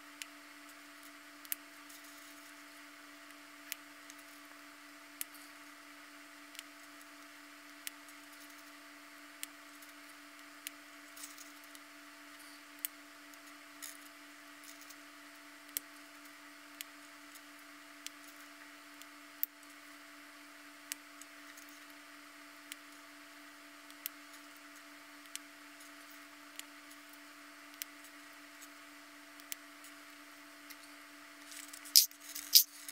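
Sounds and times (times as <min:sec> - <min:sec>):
steady low hum: 0:00.0 - 0:32.9
plastic puzzle parts clicking: 0:31.9 - 0:32.7.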